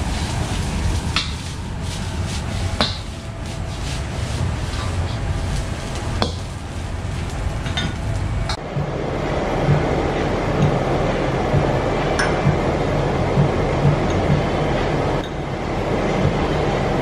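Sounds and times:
rice sizzling in wok: 0.0 - 7.5
gas burner roar: 0.0 - 17.0.

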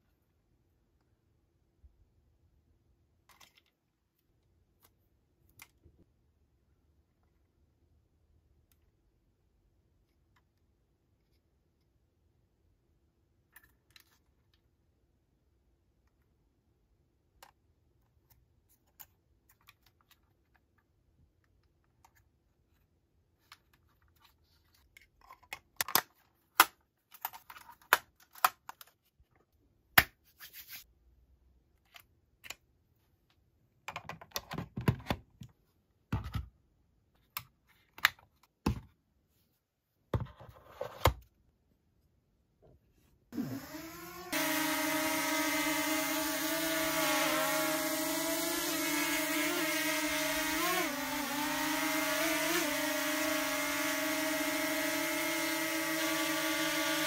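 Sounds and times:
plastic parts clicking and tapping: 3.3 - 3.8, 17.2 - 22.4, 23.4 - 29.5, 33.8 - 36.5.

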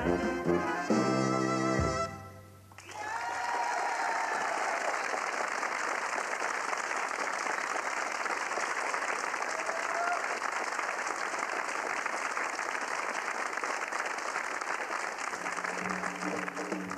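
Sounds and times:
dance band brass chord: 0.0 - 2.7
audience applause: 2.7 - 16.9.

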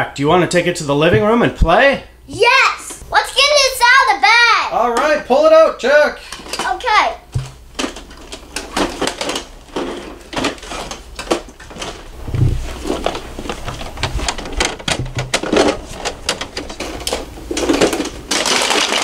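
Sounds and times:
plastic toy truck clattering: 7.4 - 12.1, 12.8 - 19.0
rustling: 7.4 - 19.0
low thumps: 12.1 - 15.5.

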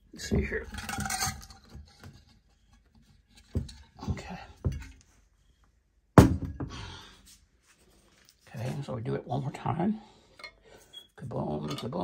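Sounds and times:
dull knocks on wooden workbench: 6.2 - 6.7.

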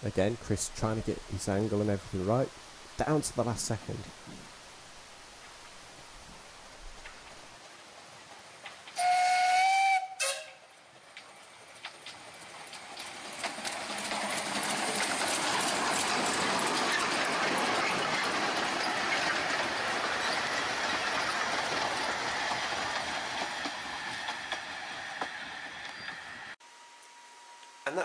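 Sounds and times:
steam train passing: 0.0 - 4.6, 5.5 - 26.6
wheels clattering over rail joints: 6.8 - 9.0, 10.7 - 26.6.

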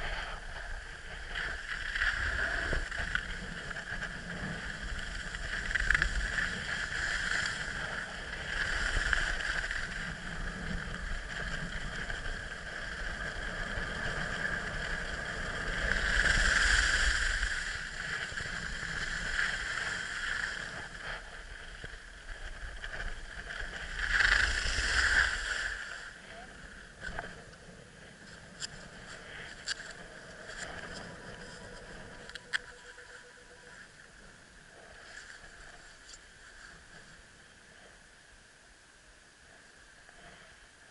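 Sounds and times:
wind rushing over microphone: 0.0 - 35.0
skis scraping over snow: 0.0 - 37.9.

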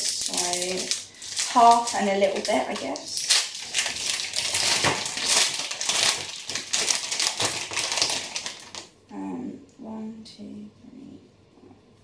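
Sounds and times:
wrapper crinkling as torn open: 0.0 - 8.9.

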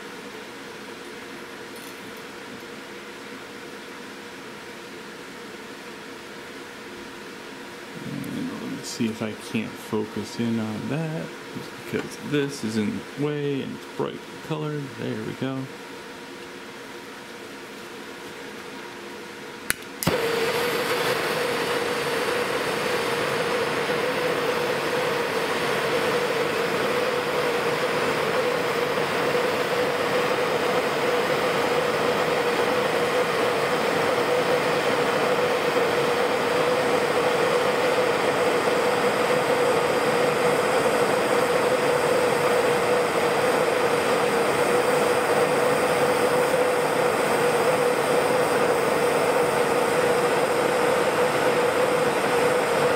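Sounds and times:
torch flame hissing: 7.8 - 15.7, 20.0 - 52.9
torch igniter click: 19.7 - 21.6.

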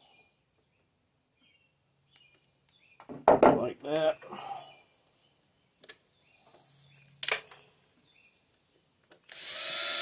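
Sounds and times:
cordless drill motor whining: 9.3 - 10.0.

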